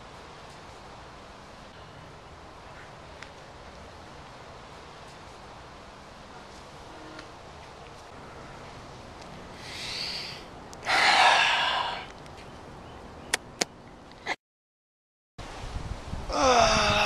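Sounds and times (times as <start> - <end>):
man sniffing: 9.6 - 12.1
man sighing: 16.3 - 17.0.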